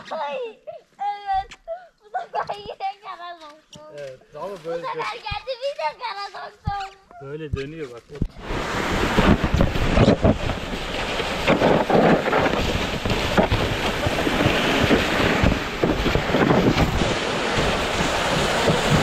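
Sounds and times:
wind on microphone: 8.3 - 19.0
sled scraping over snow: 8.4 - 19.0.

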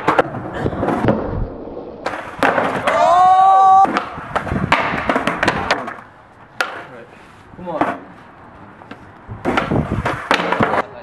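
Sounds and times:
skateboard rolling clatter: 0.0 - 3.0, 9.4 - 10.9
skateboard knocking on brick steps: 3.8 - 6.9, 8.9 - 11.0.

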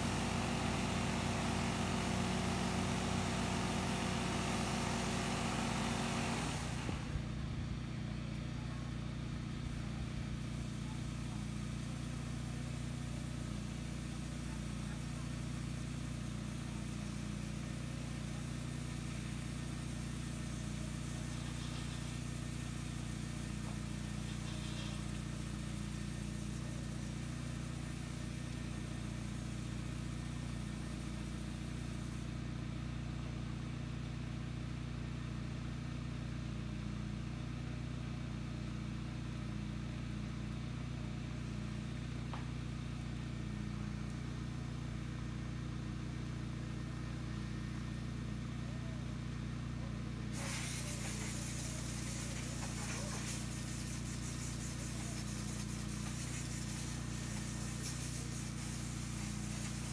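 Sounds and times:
car wash machine humming: 0.0 - 32.4, 41.0 - 59.9
high hiss: 50.3 - 59.9.

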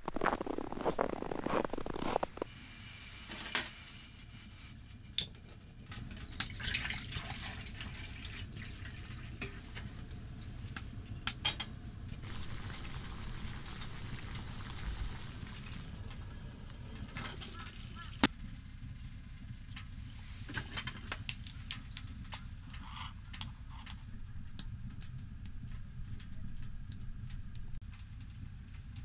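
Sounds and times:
water poured into metal pot: 6.3 - 9.7, 12.2 - 15.9
metal cookware clinking: 20.7 - 22.2.

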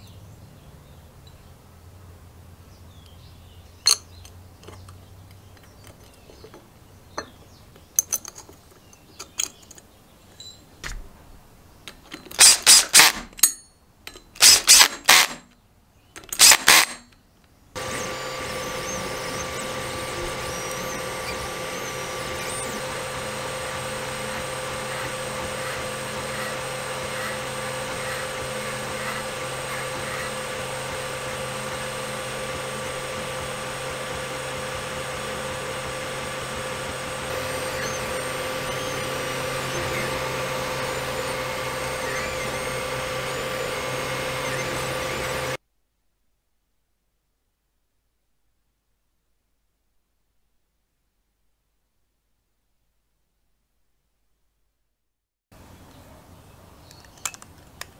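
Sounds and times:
bolts clicking by hand: 11.8 - 15.5, 16.2 - 17.2
power drill driving bolts: 11.9 - 15.6, 16.2 - 17.2, 17.8 - 45.6.

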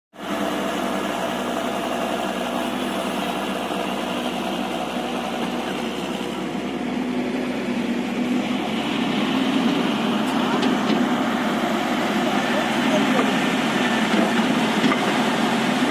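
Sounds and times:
excavator diesel engine running: 0.2 - 15.9.

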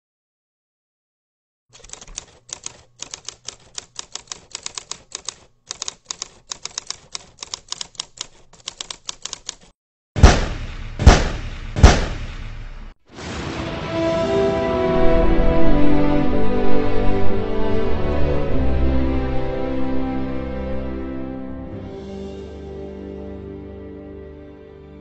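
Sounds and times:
typewriter keys clacking: 1.7 - 9.8.

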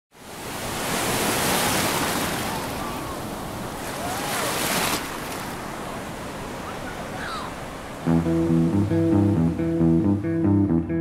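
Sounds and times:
rushing surf-like noise: 0.2 - 10.4.

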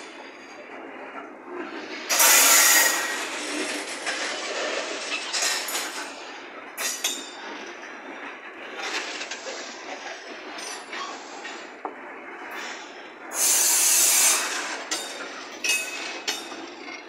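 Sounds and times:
train wheels clattering on rails: 0.0 - 17.0
wheel screech: 1.6 - 7.2, 12.5 - 16.9.

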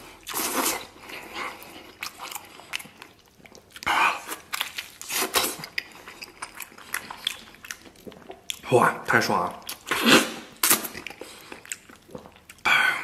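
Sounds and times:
person biting and chewing meat: 0.0 - 8.7, 9.4 - 12.8.

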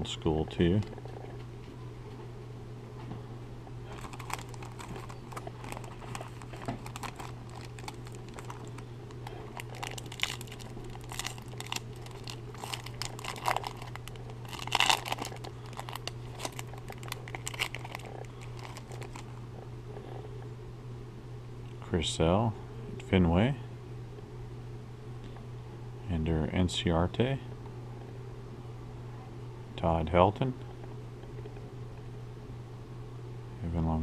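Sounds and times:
steady low hum: 0.0 - 34.0
foil wrapper crinkling and tearing: 3.9 - 19.4.

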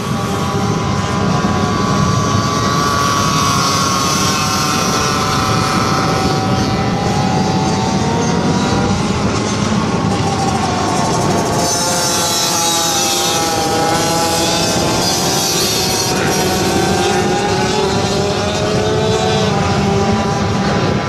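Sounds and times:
motorcycle engines at high revs: 0.0 - 21.0.

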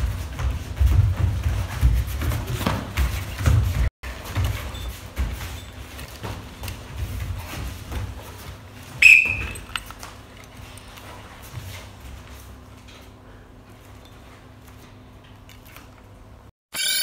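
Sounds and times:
feet moving on mats: 0.0 - 15.9.

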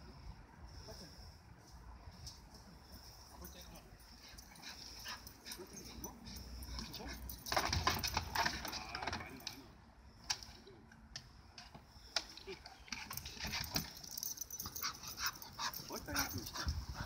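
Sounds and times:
paw clicks and scuffling: 4.1 - 9.6, 11.6 - 17.0.

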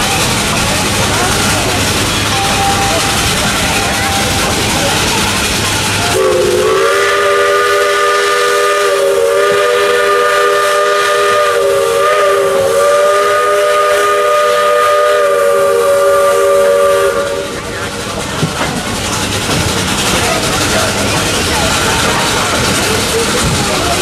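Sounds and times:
steam hissing: 0.0 - 24.0
steam whistle chord: 6.2 - 17.6.

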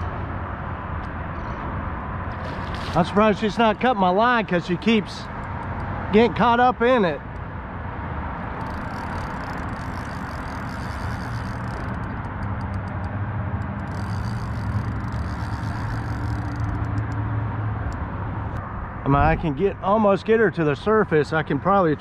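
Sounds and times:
motor drone with hum and hiss: 1.9 - 3.2, 7.3 - 18.9.

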